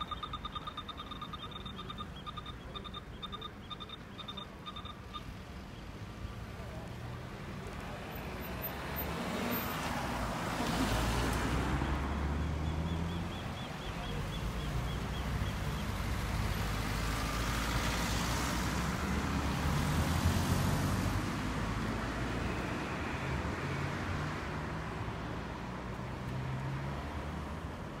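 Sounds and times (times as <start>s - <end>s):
faint rapid ticking: 0.0s - 5.3s
cars driving past: 0.0s - 28.0s.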